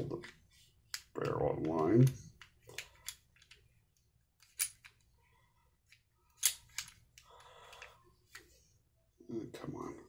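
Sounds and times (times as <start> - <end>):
pistol parts clicking: 0.2 - 3.7, 4.4 - 5.1, 5.9 - 8.4.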